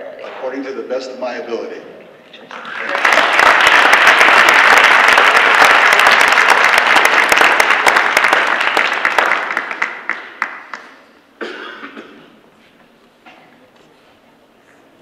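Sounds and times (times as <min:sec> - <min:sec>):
audience applauding: 0:02.5 - 0:11.1.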